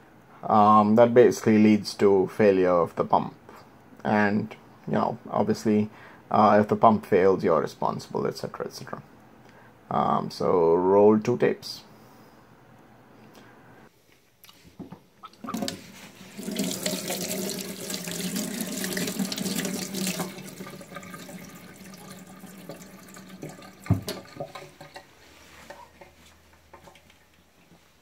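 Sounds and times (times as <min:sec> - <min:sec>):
tap water running into metal sink: 0:15.4 - 0:25.0.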